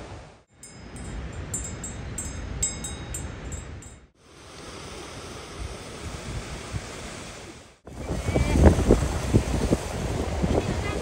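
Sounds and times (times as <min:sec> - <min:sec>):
metal collar bell clinking: 0:00.6 - 0:04.1
wind rumble on microphone: 0:05.0 - 0:11.0.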